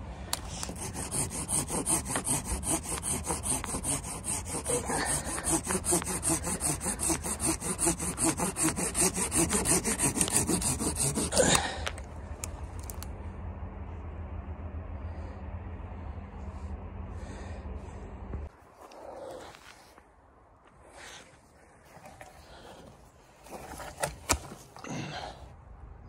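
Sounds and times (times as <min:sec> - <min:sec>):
hand saw rasping through branch: 0:00.3 - 0:11.8.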